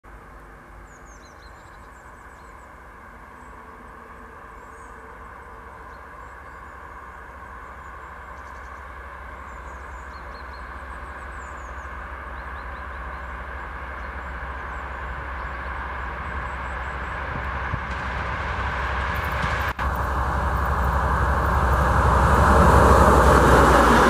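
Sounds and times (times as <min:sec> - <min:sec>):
locomotive diesel engine rumble: 0:00.1 - 0:24.0
birds chirping: 0:00.8 - 0:18.0.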